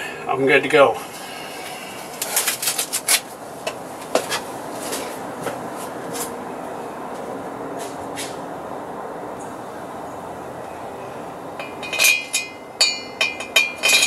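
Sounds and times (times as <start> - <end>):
gloves crinkling: 2.0 - 3.4.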